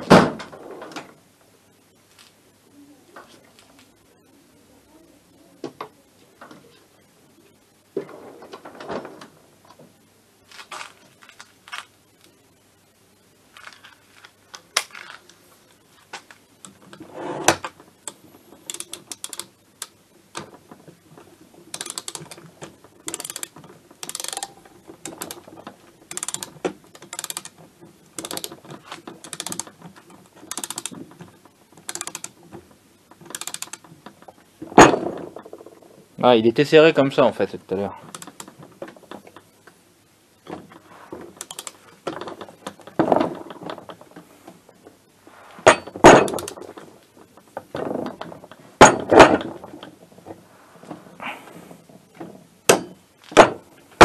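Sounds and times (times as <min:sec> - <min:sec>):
ratchet wrench clicking: 0:18.0 - 0:20.4, 0:21.7 - 0:22.4, 0:23.1 - 0:25.4, 0:26.1 - 0:27.6, 0:28.2 - 0:28.6, 0:29.2 - 0:29.8, 0:30.5 - 0:31.0, 0:31.8 - 0:32.4, 0:33.3 - 0:33.9, 0:38.1 - 0:38.5, 0:41.4 - 0:41.8.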